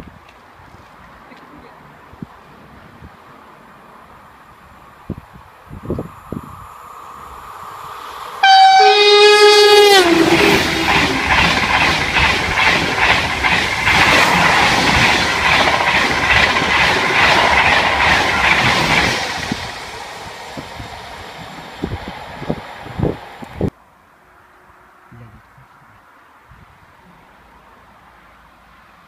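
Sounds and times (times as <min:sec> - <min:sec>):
train passing at speed: 0:01.9 - 0:23.7
train horn: 0:08.4 - 0:11.2
wheels clattering over rails: 0:10.0 - 0:19.8.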